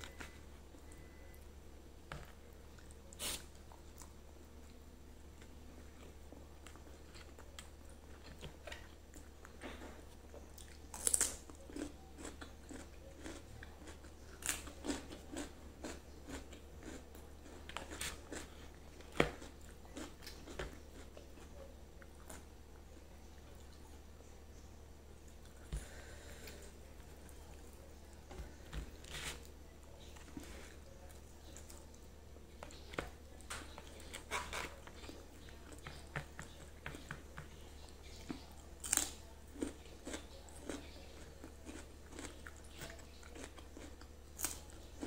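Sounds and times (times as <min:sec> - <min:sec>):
person chewing food: 0:05.4 - 0:22.9, 0:32.5 - 0:45.0.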